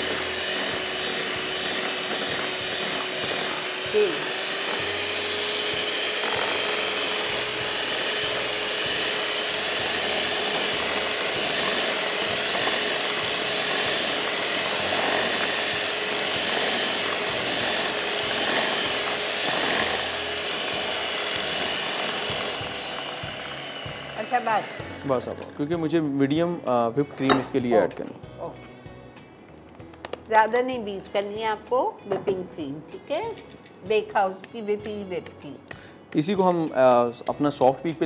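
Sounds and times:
electric mixer running: 0.0 - 26.1.

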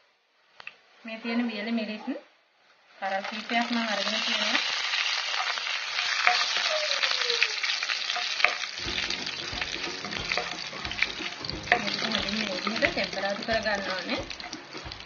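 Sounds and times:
spices sizzling and popping in oil: 3.1 - 15.0
wooden spatula stirring: 3.9 - 15.0.

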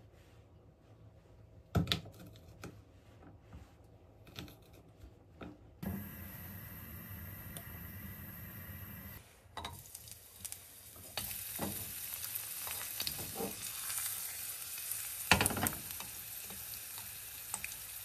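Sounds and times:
frying pan hissing: 5.8 - 18.0.

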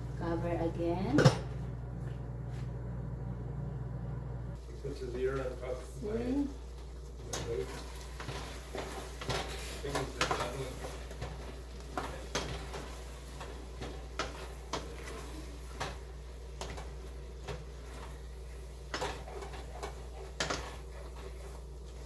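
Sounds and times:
steady low hum: 0.0 - 22.0
utensil scraping steel pot: 7.3 - 22.0.

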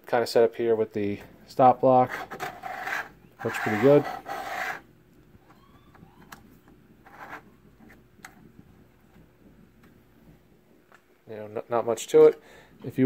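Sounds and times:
stop block scraping along fence: 2.0 - 4.8.

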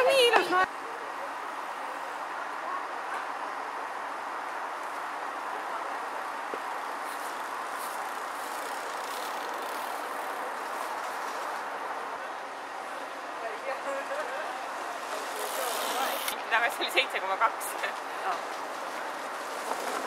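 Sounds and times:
steady rushing background noise: 0.0 - 20.0
bike tyres rustling on leaves: 6.6 - 11.9, 15.0 - 16.3, 17.9 - 20.0.

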